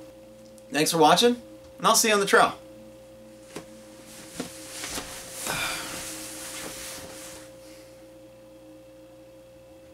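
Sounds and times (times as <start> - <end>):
hammock fabric rustling: 3.4 - 7.7.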